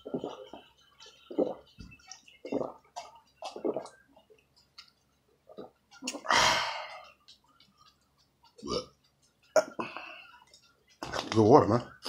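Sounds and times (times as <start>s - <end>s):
man gulping water: 0.0s - 7.3s, 8.6s - 10.1s.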